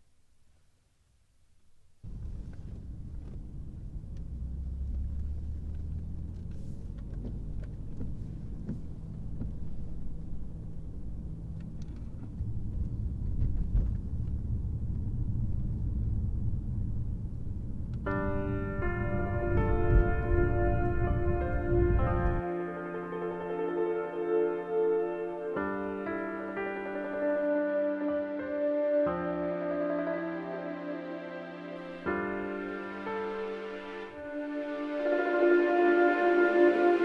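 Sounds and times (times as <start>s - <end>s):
car road noise rumble: 2.0s - 22.4s
ambient music: 18.0s - 37.0s.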